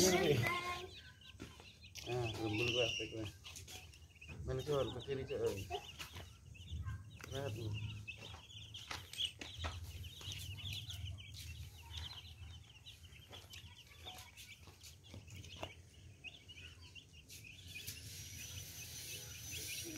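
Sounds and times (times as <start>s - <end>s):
baby chicks peeping: 0.0s - 19.9s.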